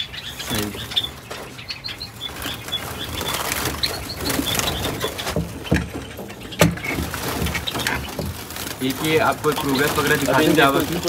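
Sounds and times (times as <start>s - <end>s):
sparrows chirping: 0.0s - 11.0s
knocks on clay pot and cage: 4.3s - 8.5s.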